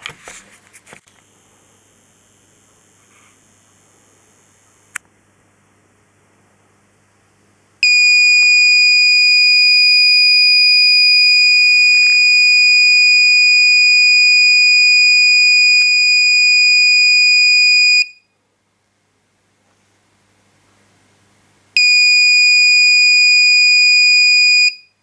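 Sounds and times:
high-pitched electronic buzzer tone: 0:07.8 - 0:18.2.

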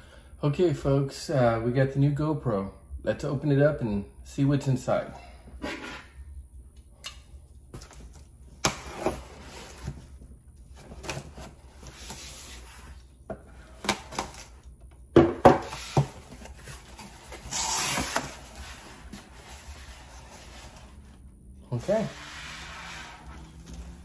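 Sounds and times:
cardboard box scraping: 0:08.8 - 0:10.2, 0:21.8 - 0:24.0.

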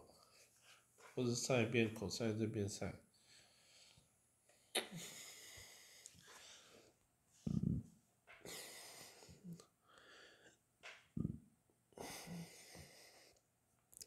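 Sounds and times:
person breathing: 0:03.2 - 0:04.1, 0:05.0 - 0:10.6, 0:12.0 - 0:13.4.

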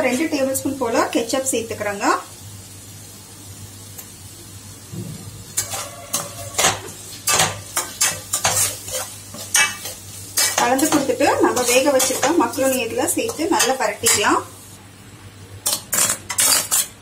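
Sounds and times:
faint frying sizzle: 0:00.0 - 0:17.0
spatula scraping frying pan: 0:05.6 - 0:14.4, 0:15.7 - 0:17.0.

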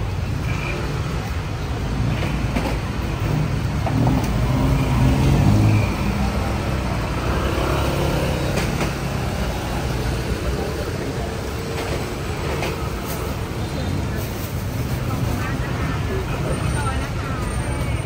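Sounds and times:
heavy vehicle engine: 0:00.0 - 0:18.0
road traffic rumble: 0:00.0 - 0:18.0.

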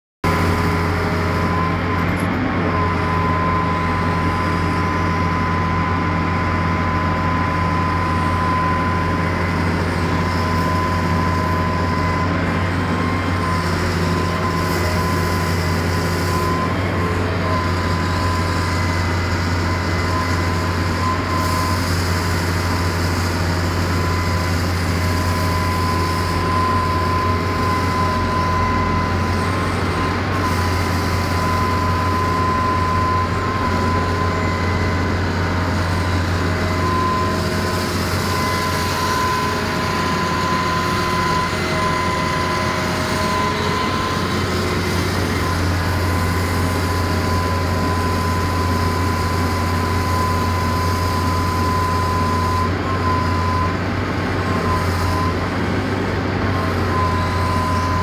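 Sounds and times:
excavator diesel drone: 0:00.2 - 0:58.0
high-pitched hydraulic whine: 0:00.3 - 0:58.0.

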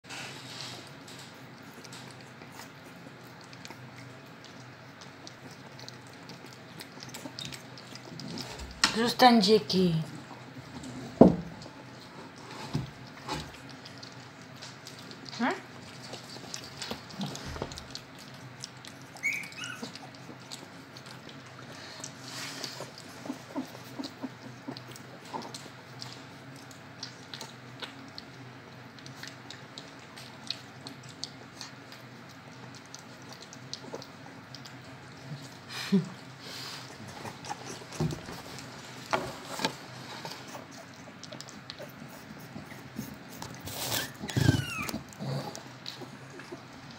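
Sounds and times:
puppies licking and smacking: 0:00.0 - 0:46.9
puppy squeak: 0:19.2 - 0:19.9, 0:44.0 - 0:45.0.

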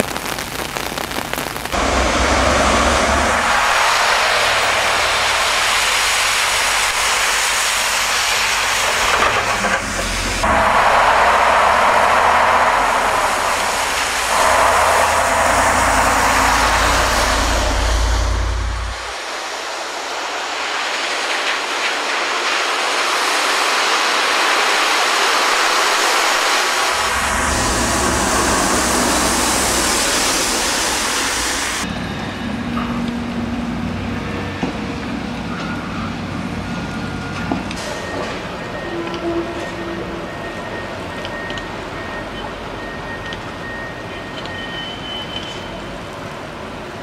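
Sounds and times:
tyres hissing on wet road: 0:00.0 - 0:47.0
truck engine rumble: 0:01.6 - 0:19.7, 0:26.1 - 0:44.4
low hum: 0:01.8 - 0:19.9, 0:26.5 - 0:32.0.

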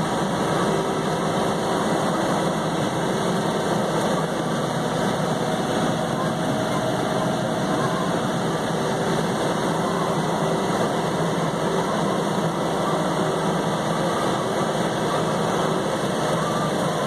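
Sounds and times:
rotary cutter mowing: 0:00.0 - 0:17.0
tractor diesel engine running: 0:00.0 - 0:17.0.

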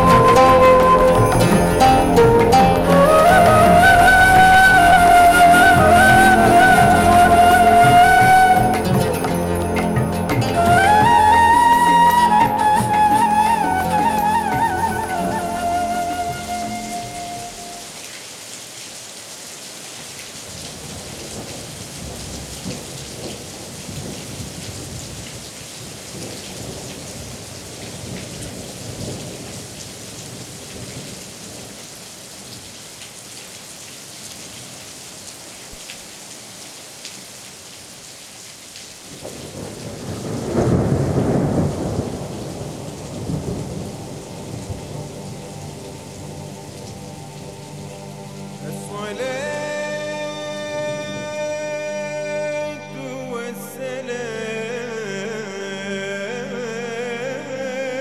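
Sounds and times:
steady rain: 0:00.0 - 0:52.5
thunder rolling: 0:39.2 - 0:46.8.

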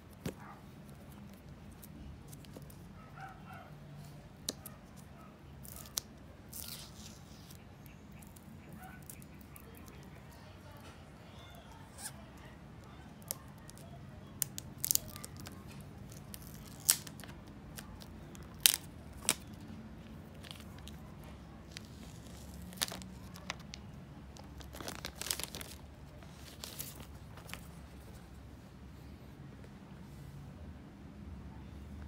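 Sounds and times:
plastic film tearing and crinkling: 0:05.6 - 0:07.6, 0:13.2 - 0:19.7, 0:21.7 - 0:27.7.

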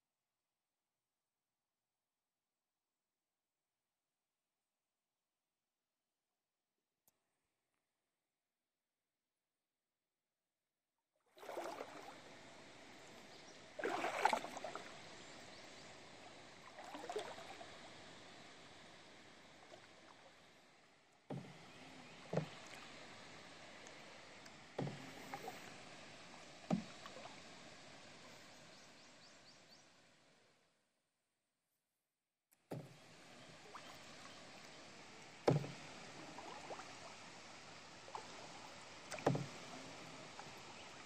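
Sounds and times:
paddle splashing in water: 0:11.3 - 0:18.0, 0:21.3 - 0:25.9, 0:26.5 - 0:27.4, 0:32.7 - 0:41.0
water dripping and swirling: 0:11.3 - 0:28.6, 0:32.7 - 0:41.0
paddle knocking: 0:21.3 - 0:22.9, 0:24.7 - 0:25.8, 0:26.6 - 0:27.3, 0:35.4 - 0:36.8, 0:39.1 - 0:39.7.

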